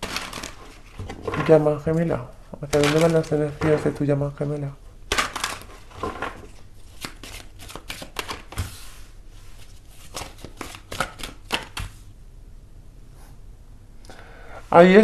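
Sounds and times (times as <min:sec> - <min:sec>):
cards being shuffled: 0:02.6 - 0:04.0, 0:05.1 - 0:09.0, 0:09.6 - 0:12.0.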